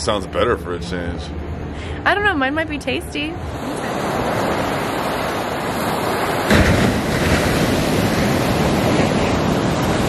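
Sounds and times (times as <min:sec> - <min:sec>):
ocean surf washing onto beach: 0:03.4 - 0:10.0
wave breaking and crashing: 0:03.4 - 0:10.0.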